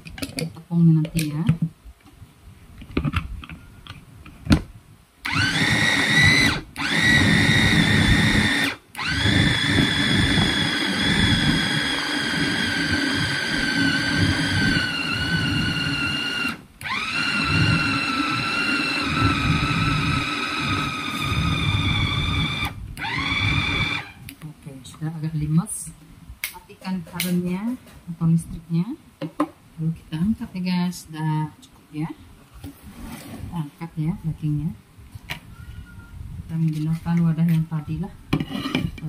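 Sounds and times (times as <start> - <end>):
food chopper motor whirring: 5.2 - 24.2.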